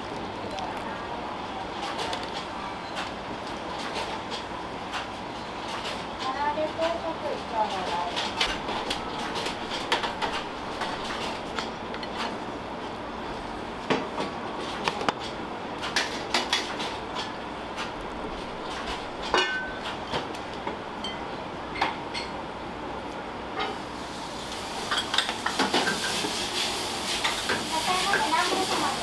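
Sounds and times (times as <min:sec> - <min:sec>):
rushing kitchen noise: 0:00.0 - 0:29.0
metal pans and utensils clinking: 0:18.8 - 0:20.3, 0:24.8 - 0:29.0.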